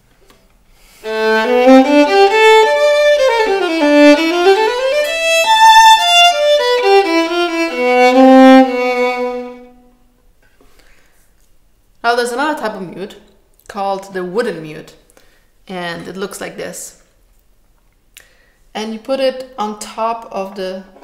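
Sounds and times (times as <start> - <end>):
muted violin playing: 1.0 - 10.0.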